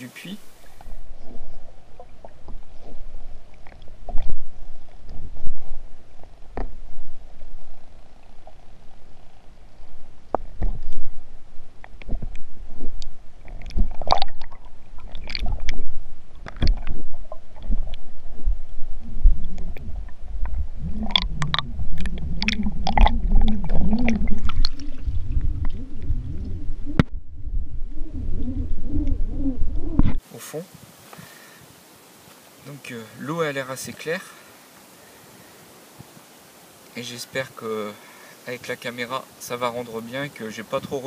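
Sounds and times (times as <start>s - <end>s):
underwater rumble of moving water: 0.0s - 30.4s.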